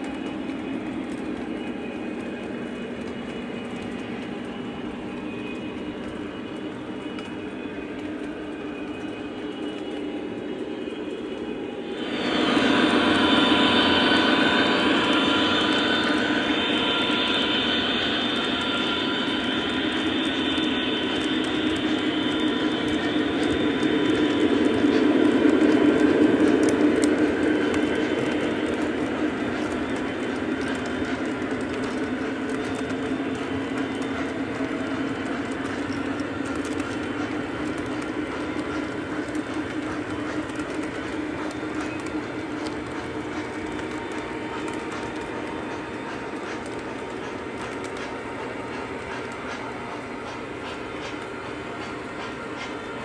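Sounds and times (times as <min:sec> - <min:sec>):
steady hum: 0:10.9 - 0:48.7
model train wheels rumbling: 0:12.0 - 0:53.0.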